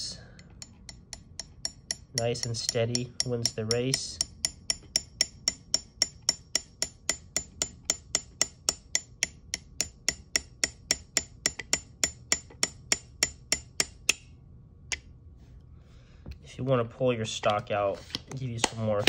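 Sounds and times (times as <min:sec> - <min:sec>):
hammer tapping metal punch: 0:00.6 - 0:14.3.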